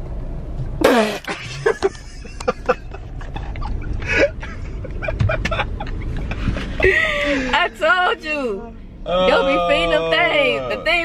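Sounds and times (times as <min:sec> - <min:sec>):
car driving rumble: 0:00.0 - 0:11.0
people laughing: 0:01.3 - 0:07.5
person crying out: 0:09.1 - 0:11.0.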